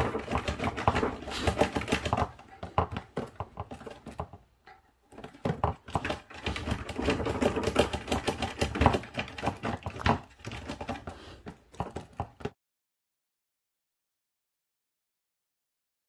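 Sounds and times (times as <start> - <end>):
dog claws scratching wood: 0.0 - 12.6.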